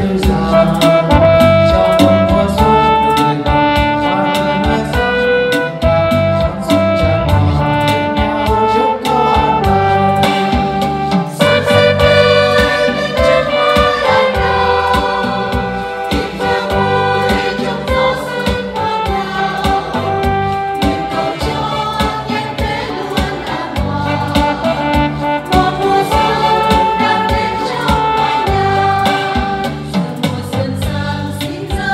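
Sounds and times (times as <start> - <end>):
electronic keyboard: 0.0 - 31.2
women's choir singing a hymn: 10.3 - 31.9.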